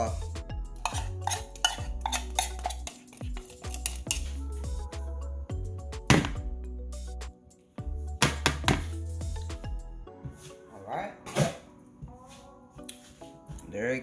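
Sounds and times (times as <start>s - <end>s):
background music: 0.0s - 14.0s
spoon knocking: 0.8s - 4.2s
metal spoon scraping a can: 0.8s - 4.3s.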